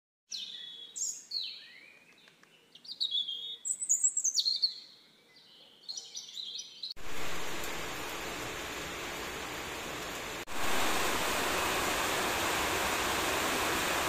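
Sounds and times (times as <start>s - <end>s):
small birds chirping: 0.3s - 7.0s
heavy rain rushing: 7.0s - 14.0s.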